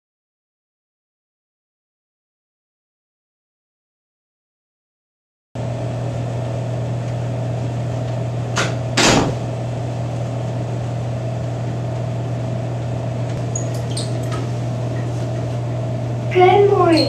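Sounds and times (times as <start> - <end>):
low electrical hum: 5.6 - 17.0.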